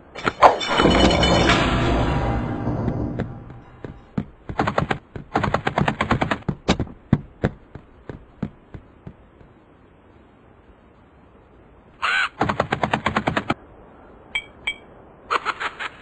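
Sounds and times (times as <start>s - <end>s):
cartoon footstep clicks: 3.8s - 9.6s.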